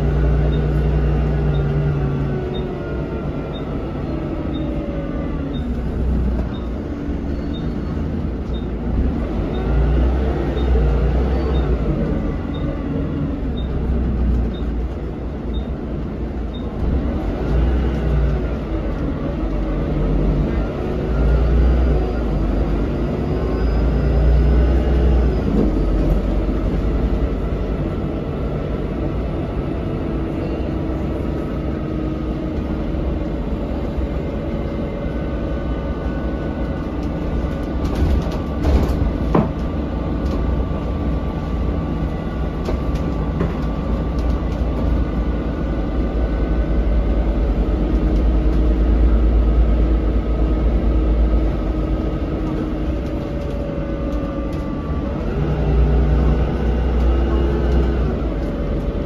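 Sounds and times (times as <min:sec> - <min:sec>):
bus engine droning: 0:00.0 - 0:59.0.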